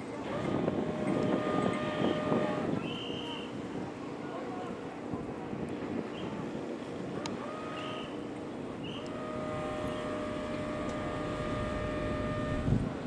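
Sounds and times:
engine running with low rumble: 0:00.0 - 0:13.0
steady whine with overtones: 0:06.3 - 0:13.0.

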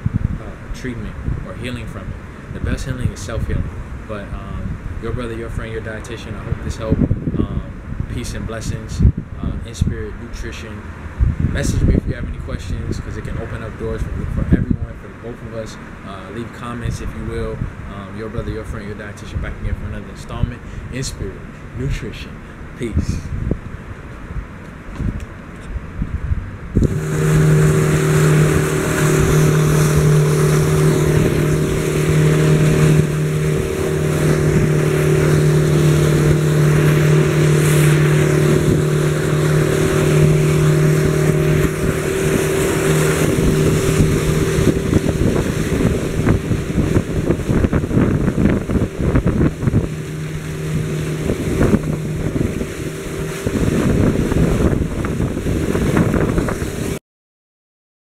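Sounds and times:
motorboat engine hum: 0:00.0 - 0:57.0
wind buffeting microphone: 0:00.0 - 0:57.0
wake splashing: 0:26.8 - 0:56.9.

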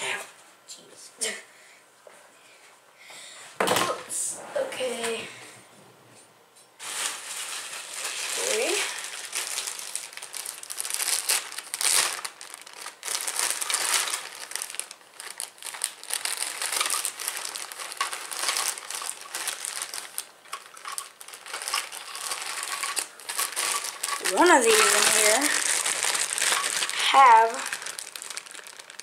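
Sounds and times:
plastic bag crinkling: 0:06.8 - 0:29.0.

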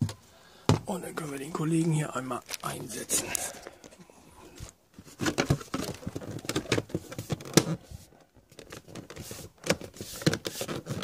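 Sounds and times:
plastic cover clicking and scraping: 0:04.6 - 0:11.0.

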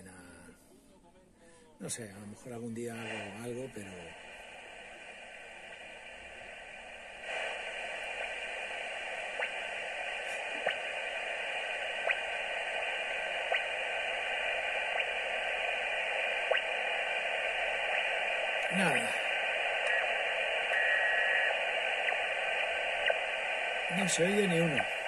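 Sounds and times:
radio static hiss: 0:01.8 - 0:25.0
faint clicks: 0:19.7 - 0:23.8.

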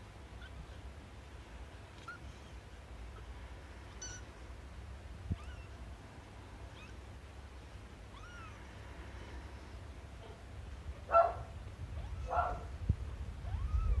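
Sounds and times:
kittens mewing: 0:01.9 - 0:04.4, 0:05.2 - 0:05.9, 0:06.6 - 0:07.1, 0:08.0 - 0:09.0, 0:13.4 - 0:14.0.

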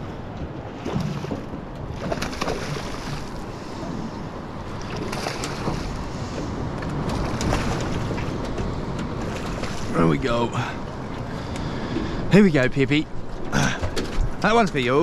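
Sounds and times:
water lapping at boat hull: 0:00.0 - 0:12.3
fish splashing at surface: 0:02.0 - 0:03.4.

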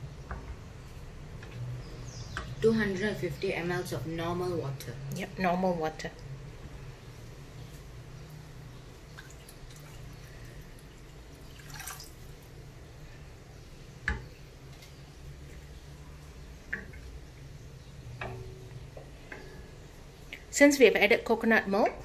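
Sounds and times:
low steady hum: 0:00.0 - 0:22.0
water pouring into a pot: 0:09.1 - 0:12.5.

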